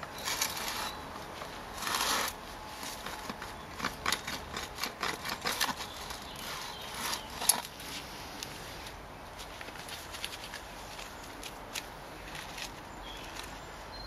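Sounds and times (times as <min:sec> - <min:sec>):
auger scraping through soil: 0:00.2 - 0:09.0.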